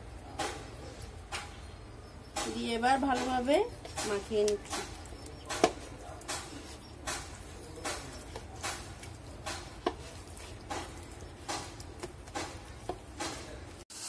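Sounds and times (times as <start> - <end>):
hand squelching in wet marinade: 3.0 - 13.8.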